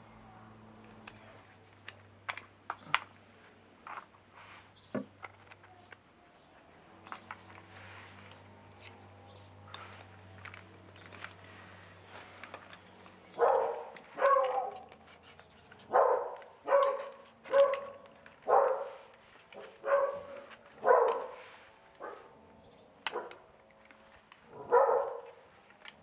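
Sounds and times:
dog barking: 0:13.4 - 0:14.9, 0:15.9 - 0:21.4, 0:22.0 - 0:22.3, 0:23.1 - 0:23.4, 0:24.5 - 0:25.4.

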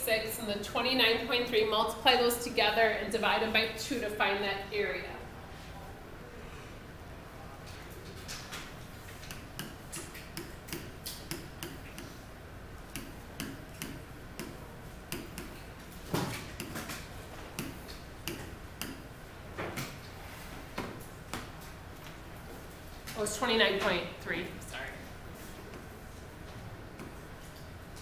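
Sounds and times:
pen tapping on glass screen: 0:09.2 - 0:12.2, 0:12.9 - 0:15.6, 0:17.6 - 0:19.0.

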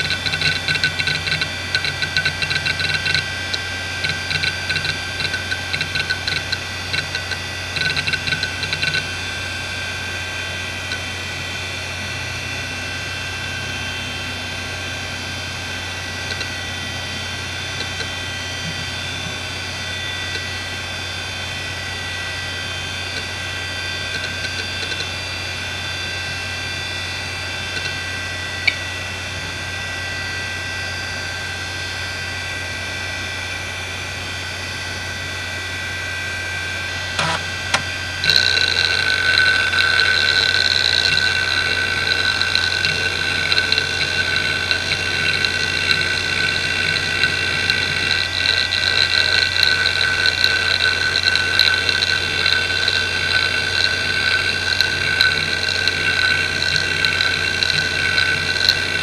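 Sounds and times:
hard drive seek clicks: 0:00.0 - 0:09.2, 0:16.0 - 0:19.5, 0:24.0 - 0:25.2, 0:37.1 - 0:59.0
hard drive spinning whine: 0:00.0 - 0:59.0.

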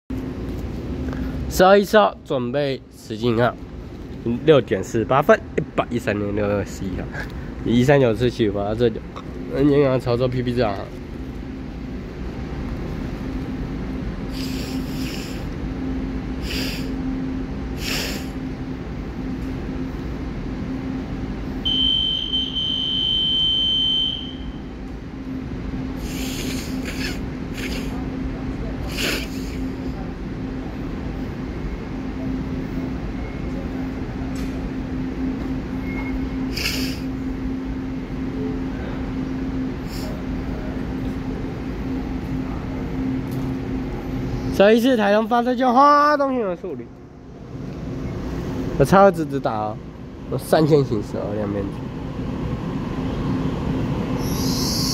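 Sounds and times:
low hum with faint tone: 0:00.1 - 0:54.9
short hissing puffs: 0:14.3 - 0:15.5, 0:16.4 - 0:17.0, 0:17.8 - 0:18.4, 0:26.0 - 0:28.0, 0:36.5 - 0:37.1
short hiss: 0:36.5 - 0:37.0.

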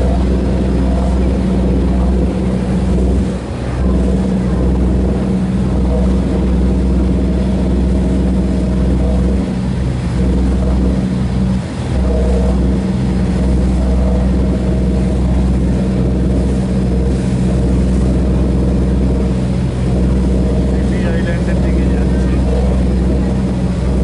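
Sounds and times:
ferry engine droning: 0:00.0 - 0:24.0
wake water rushing: 0:00.0 - 0:24.0.

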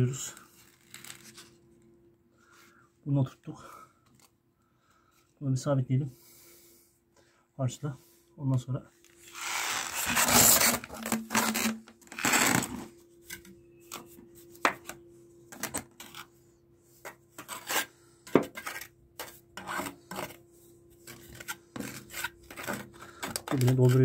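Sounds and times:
trowel scraping mortar: 0:09.3 - 0:12.7, 0:17.0 - 0:20.4, 0:21.0 - 0:24.0.

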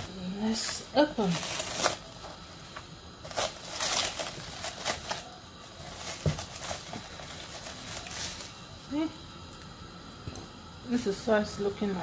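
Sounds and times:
cling film crinkling: 0:00.0 - 0:08.8.

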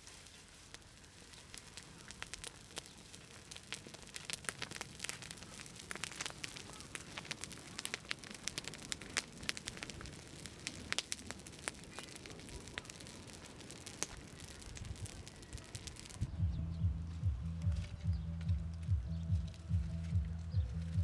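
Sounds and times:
rush of flame: 0:00.0 - 0:16.3
dry grass fire crackling: 0:00.0 - 0:21.0.

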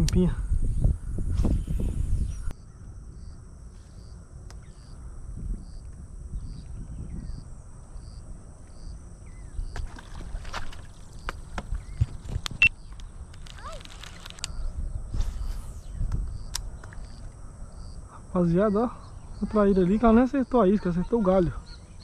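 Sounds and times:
wind on microphone: 0:00.0 - 0:02.5, 0:05.2 - 0:07.6, 0:09.5 - 0:17.0.

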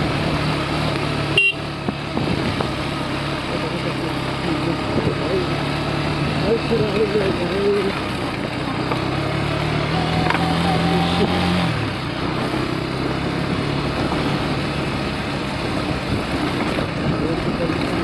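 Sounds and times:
motorcycle engine running: 0:00.0 - 0:18.0
wind noise: 0:01.8 - 0:02.8.

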